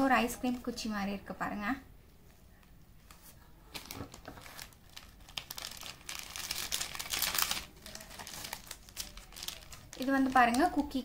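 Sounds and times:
plastic wrappers crinkling: 3.0s - 11.0s.

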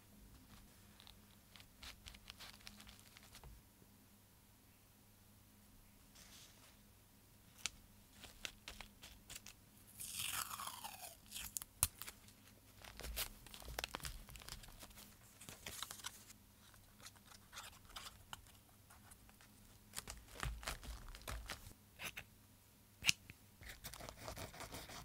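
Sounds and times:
dried stems and paper crackling: 11.5s - 18.6s.

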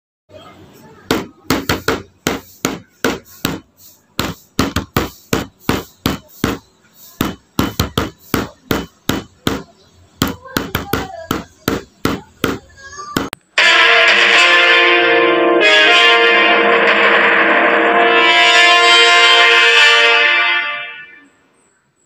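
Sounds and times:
sharp knocks: 1.1s - 13.4s.

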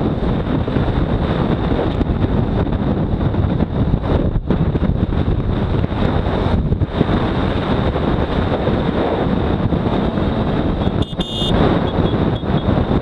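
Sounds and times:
wind rushing over microphone: 0.0s - 13.0s
motorcycle engine: 1.9s - 13.0s
brief high beep: 11.0s - 12.2s.

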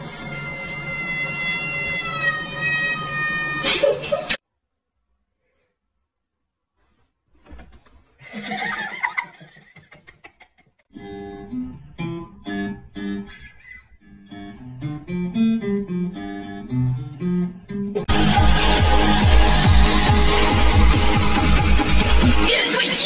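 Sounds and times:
plucked acoustic guitar music: 10.9s - 20.9s
loud electronic dance music: 18.1s - 23.0s.

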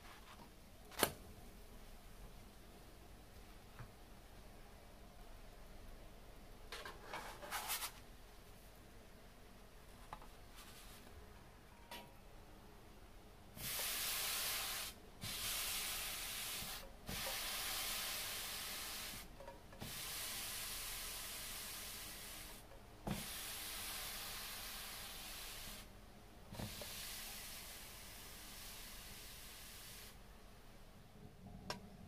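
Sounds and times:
hot pan hissing: 13.6s - 25.9s, 26.6s - 30.2s.

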